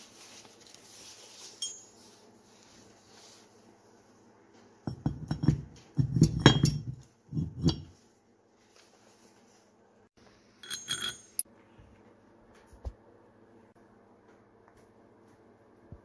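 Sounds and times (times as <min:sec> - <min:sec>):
steel bolts clinking: 0:10.6 - 0:11.4.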